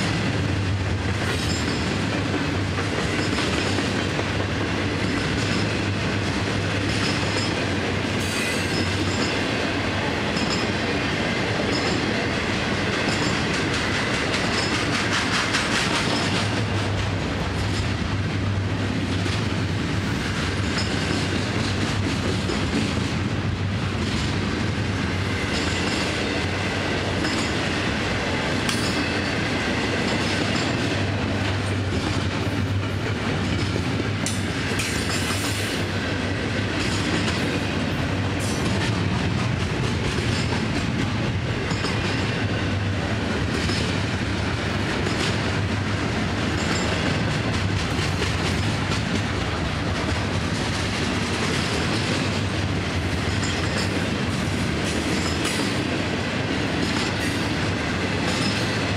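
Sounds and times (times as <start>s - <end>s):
freight train rumbling past: 0.0s - 58.9s
wheels clicking over rail joints: 11.6s - 18.4s.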